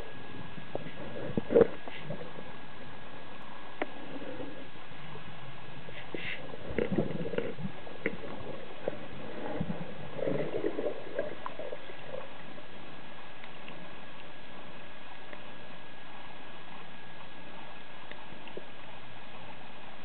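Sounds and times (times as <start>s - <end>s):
gurgling bubbles: 0.0s - 14.7s
steady underwater hiss: 0.0s - 20.0s.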